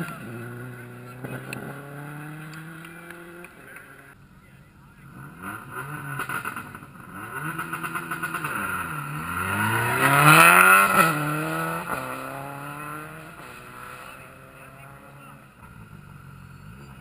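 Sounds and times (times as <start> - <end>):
rally car engine revving: 0.0 - 17.0.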